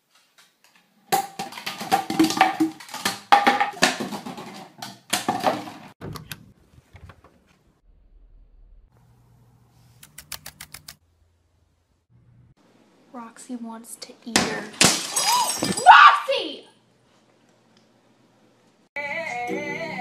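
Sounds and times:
plastic bottles clattering on wood floor: 0:01.1 - 0:05.9.

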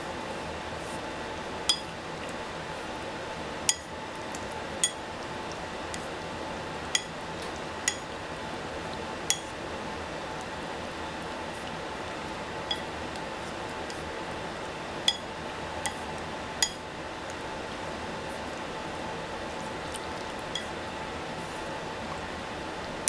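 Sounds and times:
chopsticks tapping ceramic bowl: 0:07.0 - 0:07.2, 0:09.3 - 0:09.5, 0:12.7 - 0:12.9, 0:15.1 - 0:16.0, 0:16.6 - 0:16.8, 0:20.5 - 0:20.7.

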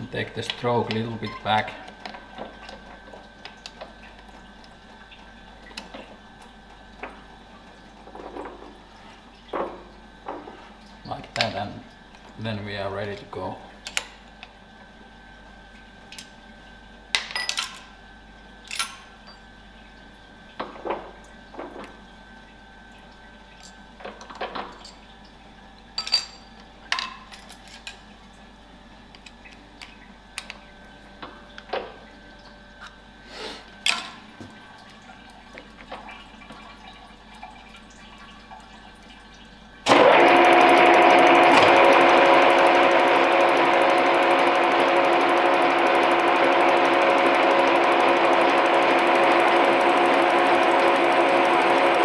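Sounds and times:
milling machine cutting: 0:39.9 - 0:52.0.

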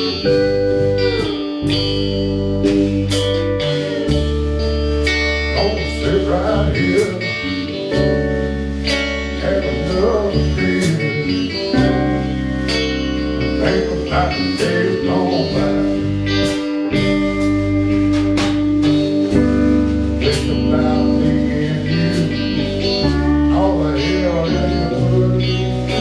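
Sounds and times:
drums: 0:00.0 - 0:26.0
electric bass: 0:00.0 - 0:26.0
electric guitar: 0:00.0 - 0:26.0
pedal steel guitar: 0:00.0 - 0:26.0
man singing: 0:05.5 - 0:08.2, 0:09.2 - 0:12.2, 0:13.2 - 0:16.6, 0:20.2 - 0:26.0.

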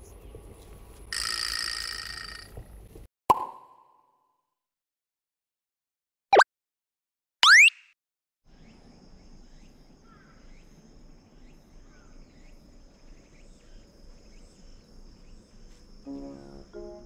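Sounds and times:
faint bird chirps: 0:08.5 - 0:16.0
insects droning: 0:08.5 - 0:17.0
background music with brass: 0:16.1 - 0:17.0.

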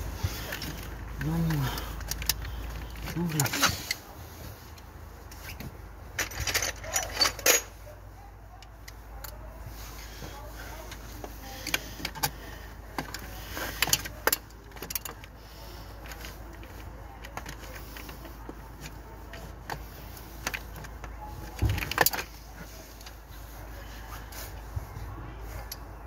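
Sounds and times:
tools clinking on metal: 0:06.2 - 0:07.8.

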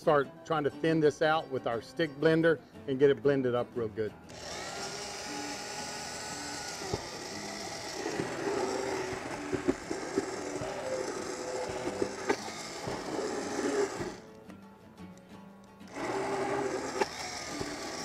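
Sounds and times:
immersion blender whirring: 0:04.3 - 0:14.2, 0:15.9 - 0:18.0
blender knocking against pot: 0:06.7 - 0:14.2.

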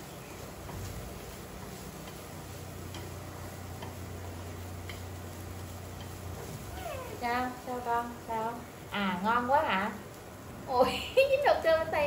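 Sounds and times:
chopsticks stirring rice in pan: 0:00.0 - 0:10.5
steady low hum: 0:00.0 - 0:12.0
chopsticks tapping pan: 0:00.4 - 0:06.5.

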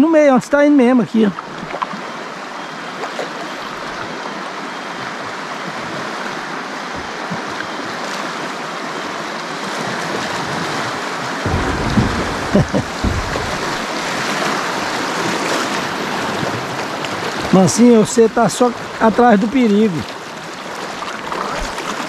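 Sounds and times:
river water rushing: 0:01.4 - 0:22.0
dull knocks: 0:11.5 - 0:14.0
low rumble: 0:11.5 - 0:14.0.

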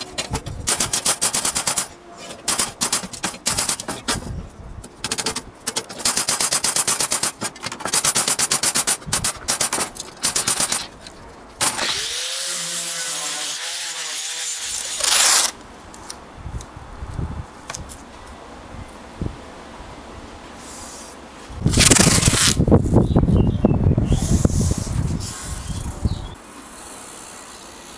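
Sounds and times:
angle grinder sanding metal: 0:11.6 - 0:15.5.

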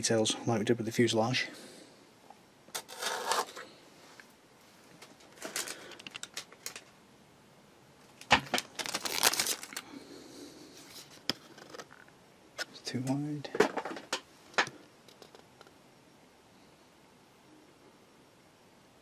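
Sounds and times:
tape crinkling and tearing: 0:05.0 - 0:06.9, 0:08.2 - 0:09.9.

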